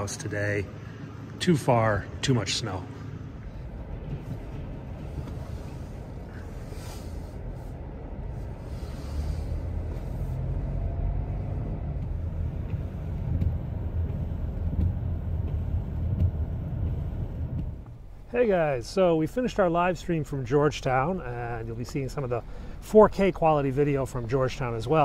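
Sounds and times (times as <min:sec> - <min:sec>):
car engine and road rumble: 0:00.0 - 0:25.0.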